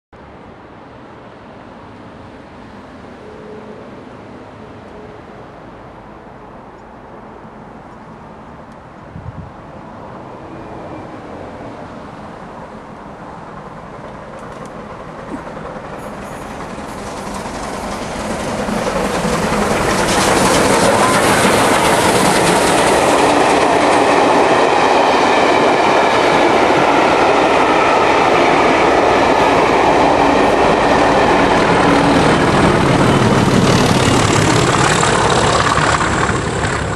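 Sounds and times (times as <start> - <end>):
train wheels rumbling on track: 4.2 - 36.9
steam train passing: 9.5 - 36.9.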